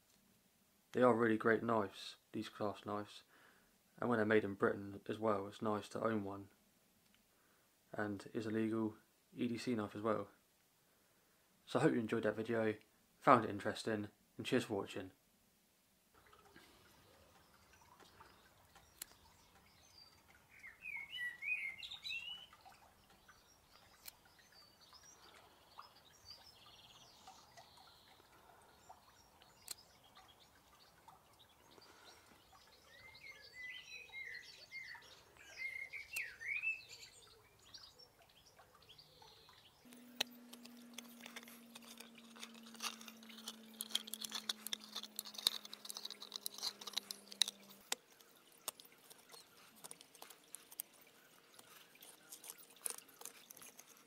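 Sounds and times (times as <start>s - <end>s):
small birds singing: 16.2s - 54.0s
knife opening a can: 39.9s - 48.0s.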